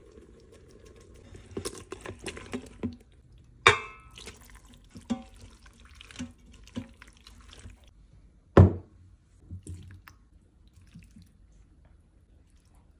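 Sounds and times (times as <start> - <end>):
spoon stirring pasta in pot: 0.0 - 7.9
spoon clinking ceramic bowl: 3.7 - 4.2.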